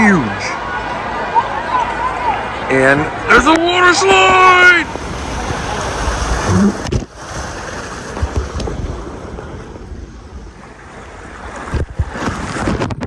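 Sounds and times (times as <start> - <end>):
rushing water: 0.0 - 13.0
air on microphone: 4.3 - 10.5
splash into pool: 4.8 - 9.4.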